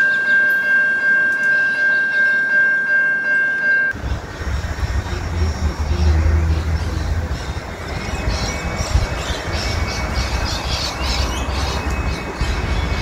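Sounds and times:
low rumble: 3.9 - 13.0
birds squawking harshly: 4.0 - 13.0.

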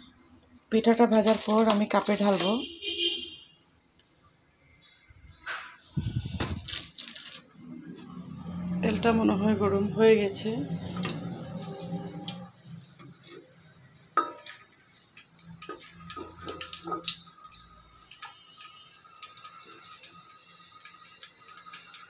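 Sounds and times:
food sizzling in oil: 0.7 - 2.8, 5.9 - 8.8, 9.8 - 22.0.

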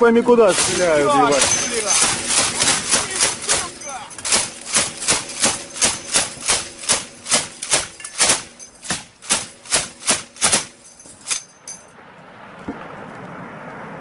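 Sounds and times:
gunshots: 0.4 - 10.8.

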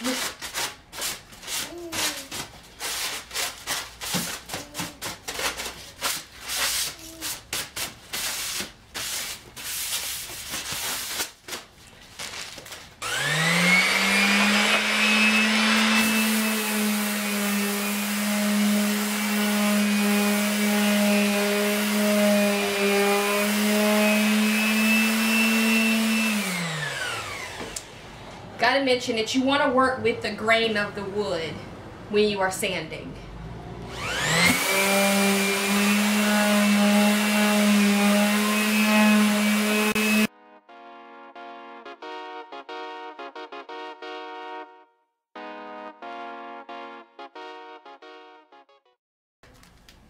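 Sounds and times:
electric palm sander whining: 13.0 - 27.9, 33.9 - 40.3.

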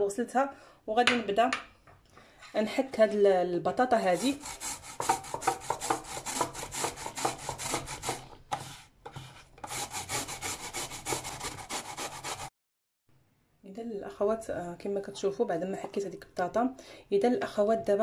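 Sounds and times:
potato grating on metal grater: 4.0 - 12.5.

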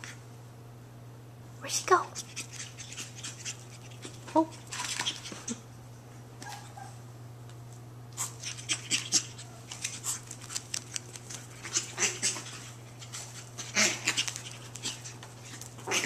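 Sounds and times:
steady low hum: 0.0 - 16.0
faint puppy noises: 1.6 - 5.7, 6.4 - 7.2, 8.1 - 16.0
paws clicking on tile: 2.2 - 5.6, 7.7 - 16.0.

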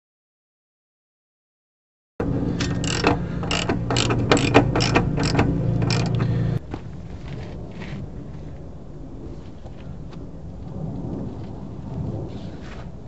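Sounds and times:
low steady hum: 2.2 - 7.4
socket ratchet clicking: 2.6 - 6.3.

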